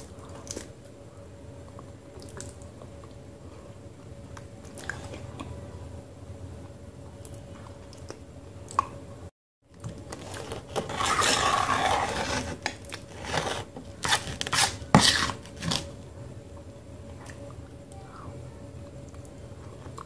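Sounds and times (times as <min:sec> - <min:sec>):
spoon scraping clay paste: 0:10.1 - 0:15.9.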